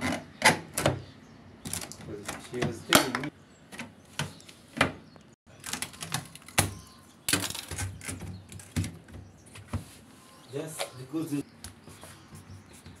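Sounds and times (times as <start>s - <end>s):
handling clicks and knocks: 1.6s - 9.8s.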